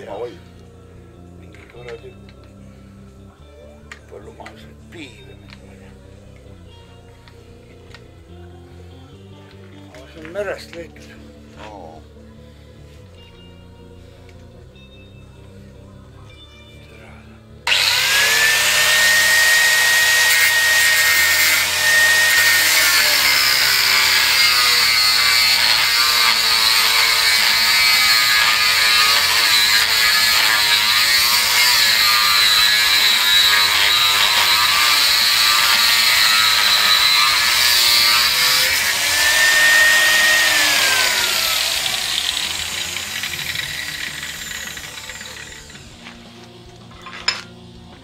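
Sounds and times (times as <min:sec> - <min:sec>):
angle grinder grinding iron: 0:17.7 - 0:48.0.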